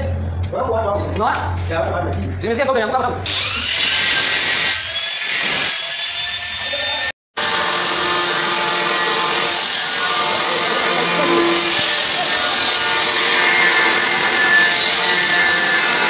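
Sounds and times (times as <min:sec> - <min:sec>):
angle grinder cutting tile: 0:03.3 - 0:16.0.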